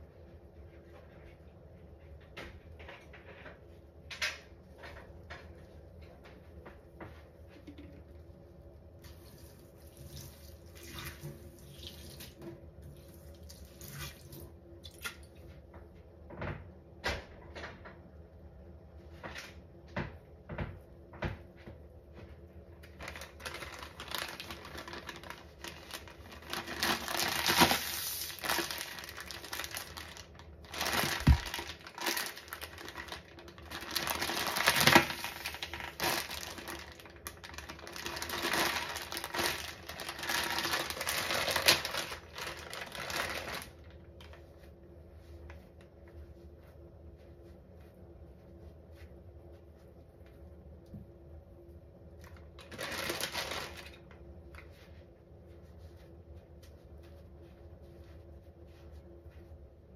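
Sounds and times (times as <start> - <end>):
plastic bag crinkling: 22.8 - 44.4, 52.2 - 54.2.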